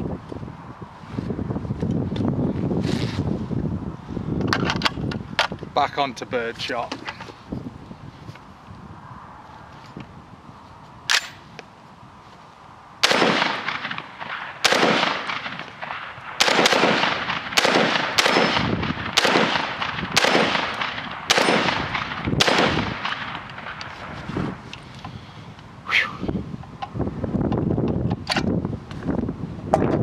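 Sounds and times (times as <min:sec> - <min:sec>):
sharp click: 0:11.1 - 0:11.4
shotgun shots with echo: 0:13.0 - 0:23.8.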